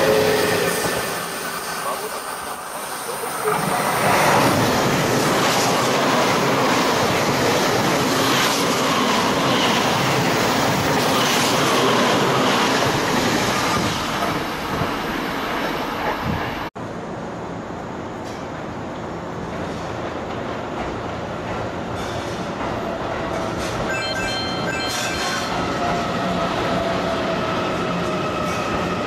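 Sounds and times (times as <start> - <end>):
train rumbling and clattering: 0.0 - 29.0
train wheel squeals: 23.3 - 29.0.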